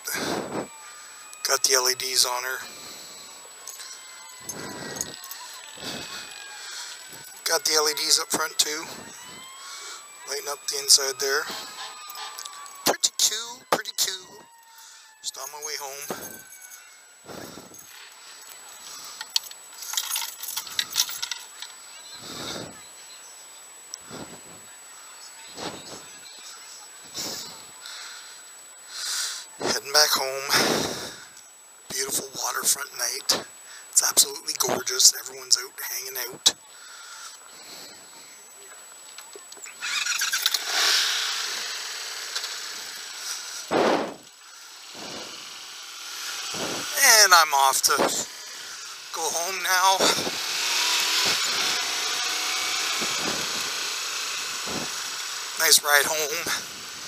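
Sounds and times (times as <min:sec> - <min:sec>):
person breathing hard: 0:00.0 - 0:01.2, 0:02.6 - 0:07.2, 0:17.2 - 0:19.4, 0:22.2 - 0:22.8, 0:24.0 - 0:24.6, 0:30.5 - 0:31.4, 0:36.7 - 0:38.4, 0:43.2 - 0:45.6
motorcycle engine: 0:00.0 - 0:13.7, 0:39.7 - 0:57.0
wind noise on microphone: 0:46.5 - 0:46.9, 0:50.0 - 0:50.4, 0:53.0 - 0:53.7, 0:54.6 - 0:55.0.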